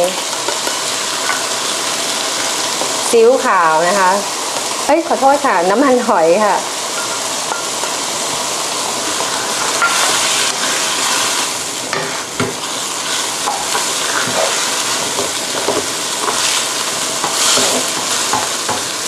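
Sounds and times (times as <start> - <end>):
food sizzling in a wok: 0.0 - 19.0
spatula scraping and knocking pan: 9.2 - 10.9, 11.9 - 12.7, 13.4 - 16.6, 17.2 - 18.9.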